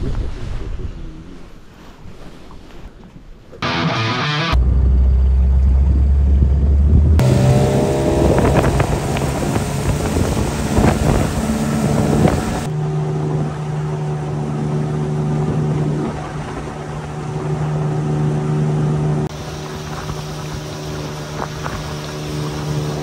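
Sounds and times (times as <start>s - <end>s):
wind: 0.0s - 3.9s, 4.5s - 23.0s
deep low hum: 3.6s - 13.8s
outboard motor running: 7.2s - 23.0s
rushing water: 7.2s - 23.0s.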